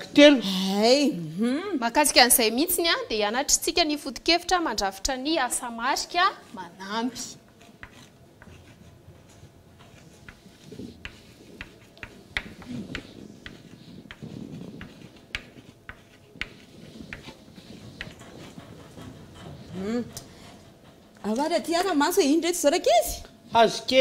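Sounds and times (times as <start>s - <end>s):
chalk writing on blackboard: 7.2s - 22.0s.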